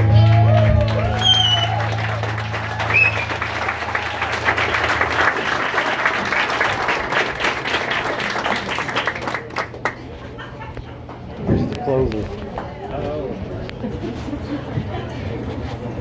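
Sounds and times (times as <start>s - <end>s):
audience clapping: 0.0s - 12.9s.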